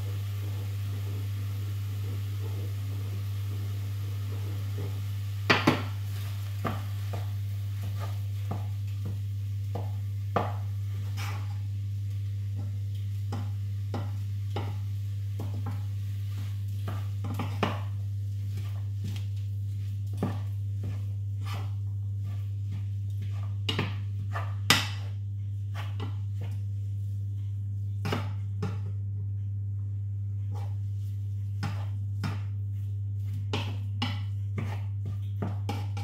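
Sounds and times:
wooden spoon stirring mince: 0.0 - 11.7, 12.4 - 26.7
low hum: 0.0 - 32.1.

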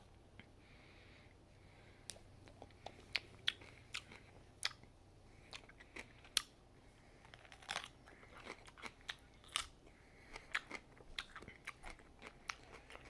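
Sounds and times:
cucumber being bitten and chewed: 7.3 - 9.8.

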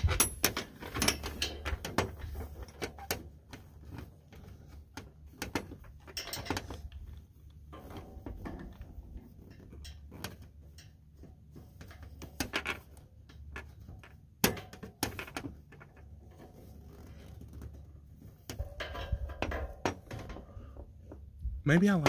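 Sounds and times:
metal clamps clinking on basket: 0.0 - 3.2, 6.0 - 6.9.

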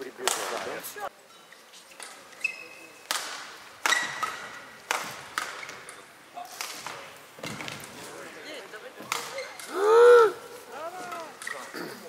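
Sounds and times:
rackets hitting shuttlecock: 0.2 - 0.8, 3.0 - 7.9, 9.0 - 9.7
shoe squeak on court: 2.3 - 3.0, 9.2 - 9.6.

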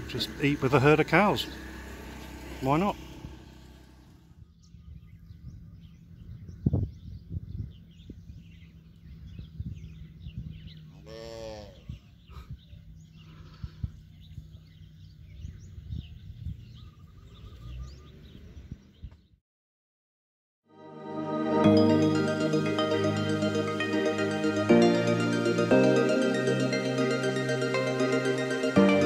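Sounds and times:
bird chirps: 4.3 - 11.0, 11.8 - 19.4
wind rumbling on microphone: 4.3 - 19.4
cow mooing: 11.0 - 11.9.

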